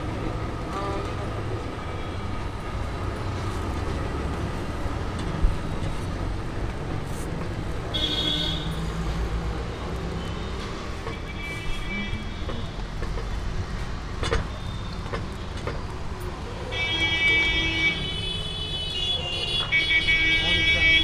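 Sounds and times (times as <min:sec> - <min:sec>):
road traffic: 0:00.0 - 0:21.0
vehicle horns honking: 0:00.7 - 0:01.3, 0:07.9 - 0:08.8, 0:16.7 - 0:21.0.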